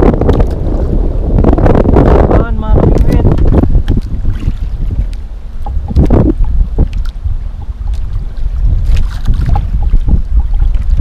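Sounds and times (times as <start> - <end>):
water lapping against boat hull: 0.0 - 11.0
wind rumbling on microphone: 0.0 - 11.0.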